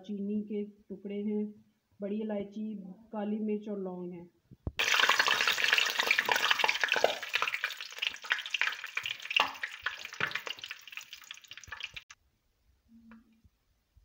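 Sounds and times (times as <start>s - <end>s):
spices sizzling in hot oil: 4.8s - 12.1s.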